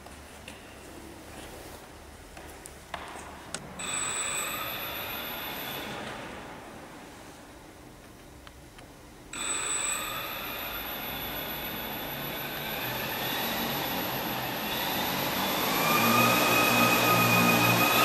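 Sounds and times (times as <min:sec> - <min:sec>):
drone motors whining: 0:03.8 - 0:06.4, 0:09.4 - 0:18.0.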